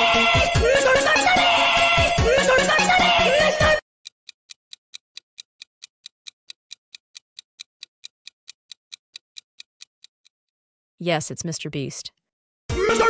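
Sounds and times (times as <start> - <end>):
music: 0.0 - 3.8, 12.7 - 13.0
clock ticking: 4.0 - 10.4.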